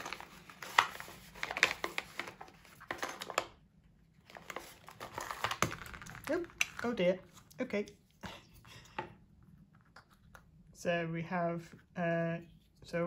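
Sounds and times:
plastic pouch crinkling: 4.3s - 7.4s.

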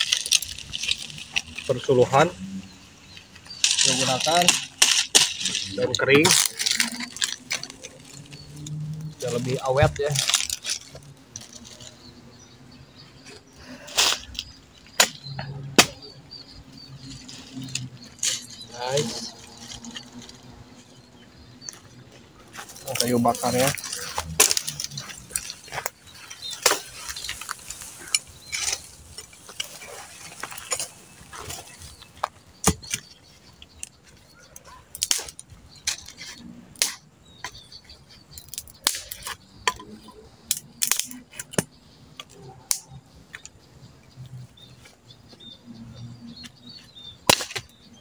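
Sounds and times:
dry twigs snapping: 0.0s - 1.8s, 3.1s - 12.0s, 17.0s - 20.6s, 22.5s - 34.2s, 34.9s - 37.6s, 38.3s - 43.5s, 47.2s - 47.8s
dry leaves rustling: 0.0s - 36.7s.

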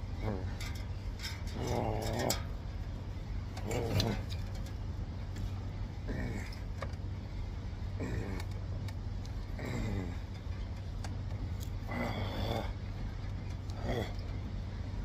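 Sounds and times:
steady low hum: 0.0s - 15.0s
man grunting: 6.0s - 6.6s, 9.6s - 10.2s, 13.8s - 14.2s.

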